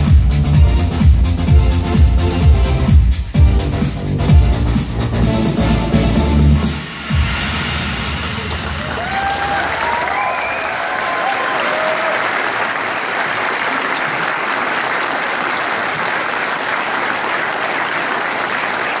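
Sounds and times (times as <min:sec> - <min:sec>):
audience applauding: 0:08.4 - 0:19.0.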